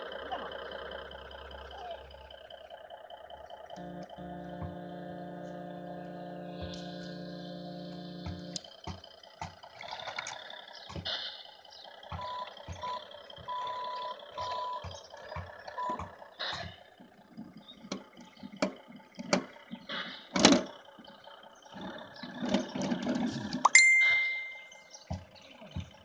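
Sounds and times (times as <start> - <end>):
buzzy toy engine sound: 0.0 - 9.4
toy reversing beeps: 12.1 - 16.8, 23.7 - 24.9.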